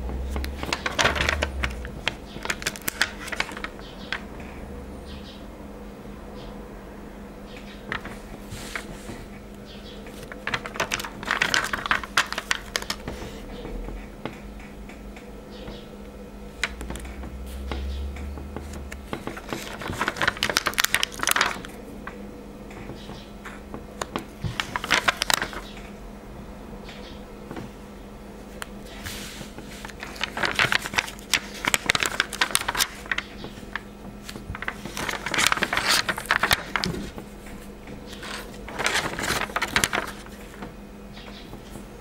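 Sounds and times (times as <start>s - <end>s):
faint steady hum: 0.0s - 42.0s
stickers peeling crackling clicks: 0.2s - 4.2s, 10.1s - 13.1s, 16.6s - 21.8s, 29.8s - 37.1s.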